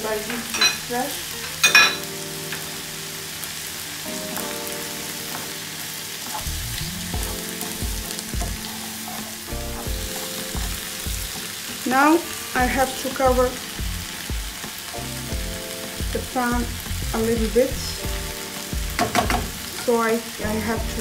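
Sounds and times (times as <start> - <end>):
onion and tomato sizzling in a pan: 0.0 - 21.0
soft background music: 0.0 - 21.0
wooden spatula stirring: 7.2 - 12.2.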